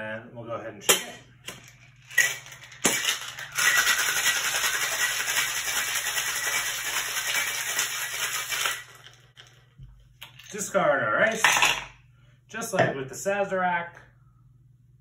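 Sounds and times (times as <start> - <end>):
ice rattling in cocktail shaker: 2.1 - 9.6.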